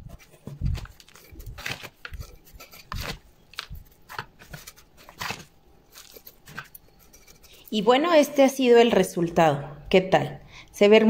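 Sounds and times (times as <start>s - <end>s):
soil scraping and rustling: 0.0s - 7.8s.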